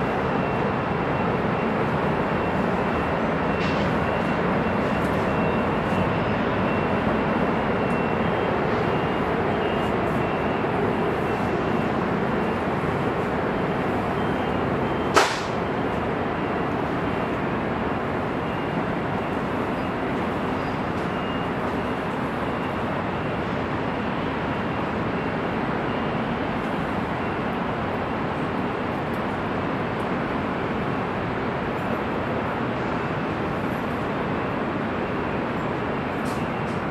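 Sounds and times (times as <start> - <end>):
heavy freeway traffic: 0.0 - 36.9
sharp click: 15.2 - 15.6.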